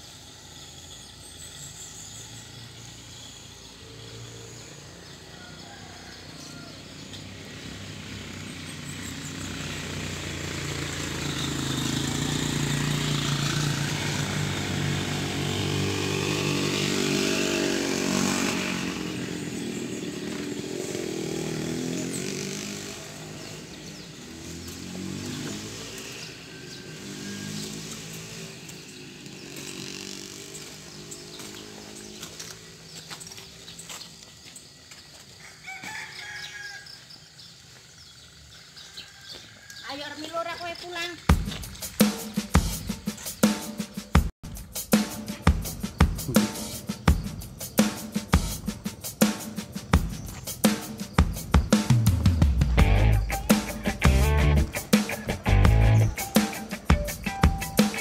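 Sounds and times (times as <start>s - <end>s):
small petrol engine running: 0.0s - 34.2s, 51.9s - 58.0s.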